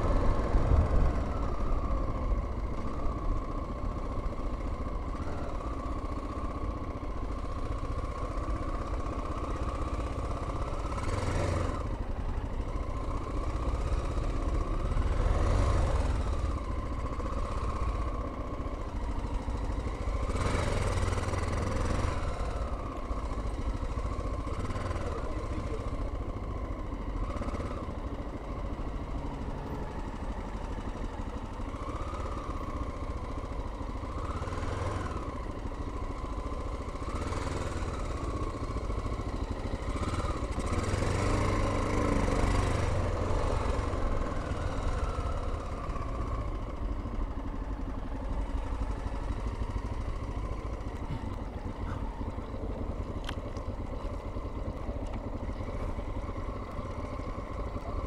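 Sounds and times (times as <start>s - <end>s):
motorcycle engine revving: 0.0s - 58.0s.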